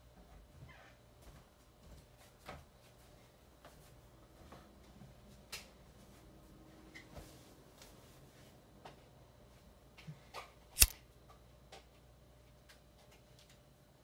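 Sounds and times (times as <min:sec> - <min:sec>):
sharp click: 0:10.8 - 0:11.0.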